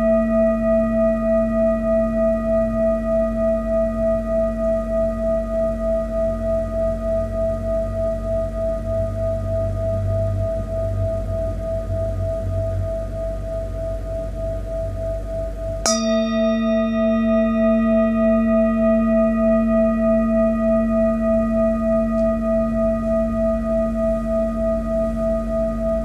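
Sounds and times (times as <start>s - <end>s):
singing bowl struck and ringing: 15.8s - 26.0s.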